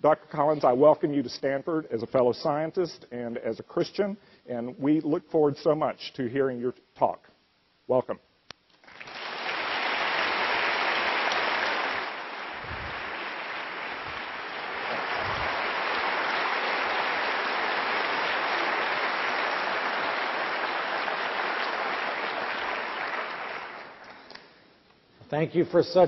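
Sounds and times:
audience applauding: 0:08.8 - 0:24.3.

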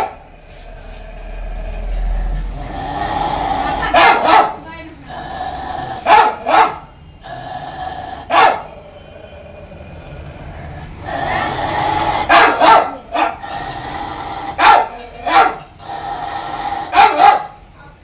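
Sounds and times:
dog barking: 0:03.6 - 0:04.6, 0:06.0 - 0:06.9, 0:08.3 - 0:08.7, 0:12.2 - 0:13.5, 0:14.5 - 0:15.7, 0:16.8 - 0:17.6.

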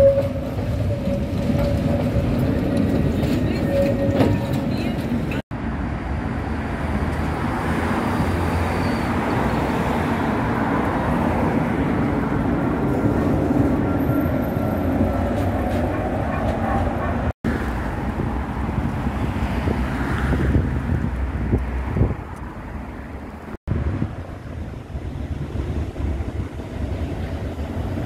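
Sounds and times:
faint tram whine: 0:00.0 - 0:05.4, 0:08.4 - 0:18.3
road traffic noise: 0:00.0 - 0:28.0
tram wheels rumbling on rails: 0:00.0 - 0:28.0
wind on microphone: 0:15.0 - 0:22.9, 0:23.7 - 0:28.0.

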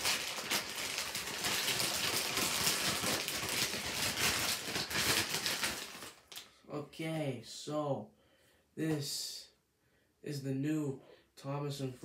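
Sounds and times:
plastic mailer bag tearing: 0:00.0 - 0:06.4.

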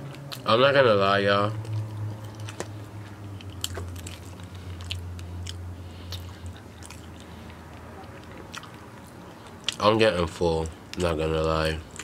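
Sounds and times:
mouth chewing food: 0:01.5 - 0:09.9.

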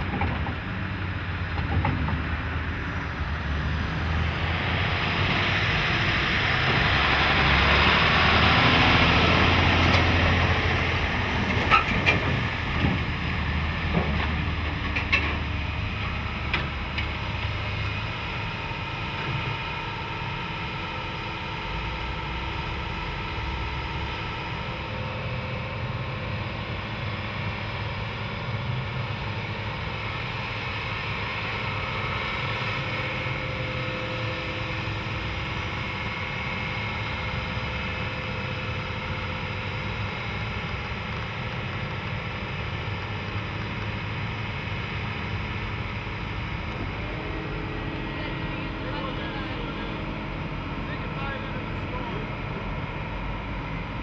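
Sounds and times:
heavy diesel machinery running: 0:00.0 - 0:54.0
faint whining tones: 0:45.8 - 0:54.0.

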